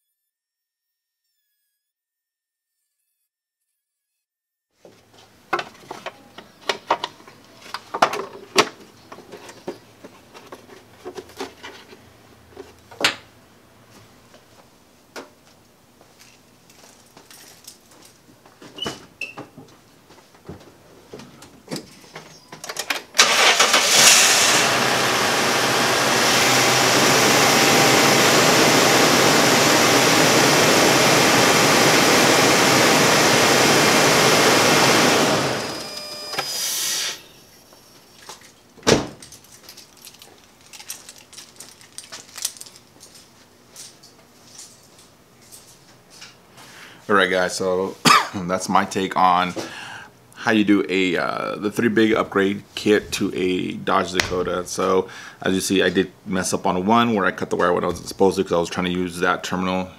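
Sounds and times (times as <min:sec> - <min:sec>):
truck engine starting and idling: 0:23.2 - 0:37.2.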